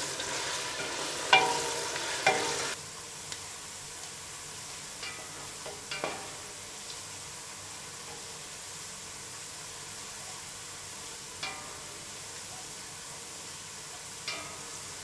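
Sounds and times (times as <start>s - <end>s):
onions sizzling in oil: 0.0s - 15.0s
wooden spoon knocking on pot: 0.8s - 2.6s.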